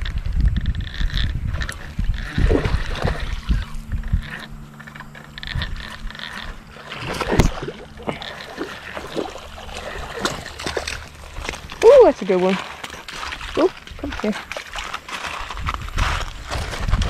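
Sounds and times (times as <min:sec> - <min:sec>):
wind rumble on microphone: 0:00.0 - 0:12.2, 0:13.2 - 0:17.0
faint steady hum: 0:00.0 - 0:17.0.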